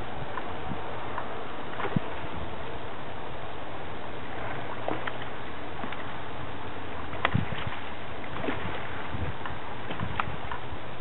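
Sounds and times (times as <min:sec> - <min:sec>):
steady background hiss: 0:00.0 - 0:11.0
fish splashing in water: 0:04.2 - 0:10.7.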